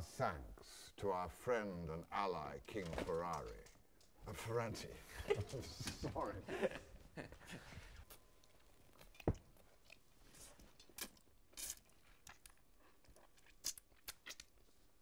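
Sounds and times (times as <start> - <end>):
man chewing and sputtering: 10.9 - 15.0.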